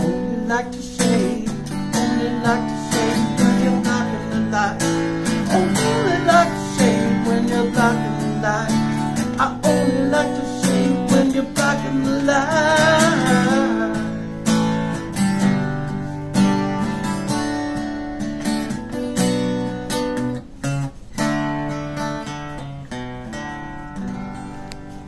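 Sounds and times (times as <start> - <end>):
man singing: 0.0 - 14.3
acoustic guitar strumming: 0.0 - 25.0.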